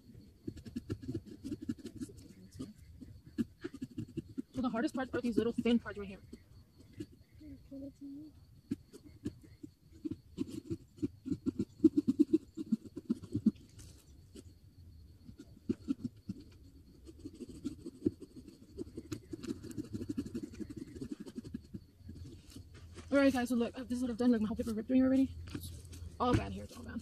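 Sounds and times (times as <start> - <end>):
saws scraping through pumpkin rind: 0.4 - 7.3, 15.4 - 24.9.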